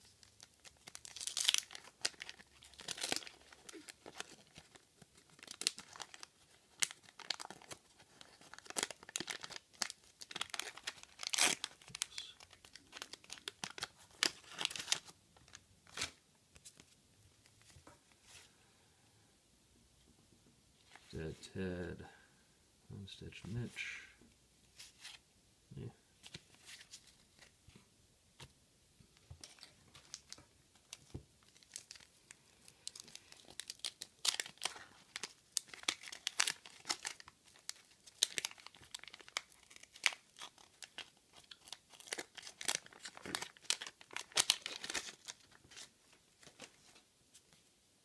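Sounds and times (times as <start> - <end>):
wax paper wrapper tearing: 0.1 - 15.1, 32.8 - 45.9.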